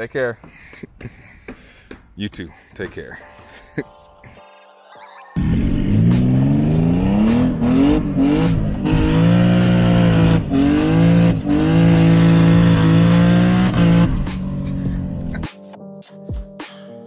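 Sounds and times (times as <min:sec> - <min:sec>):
car engine accelerating hard: 0:05.4 - 0:15.4.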